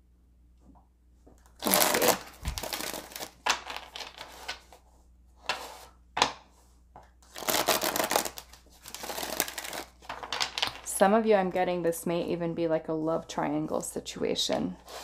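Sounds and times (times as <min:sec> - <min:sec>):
cards being shuffled: 0:01.4 - 0:04.8, 0:07.2 - 0:10.8.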